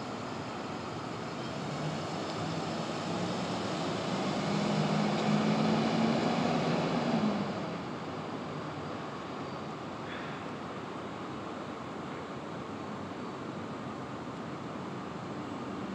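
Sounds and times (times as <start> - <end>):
passing vehicle engine: 1.4 - 8.1.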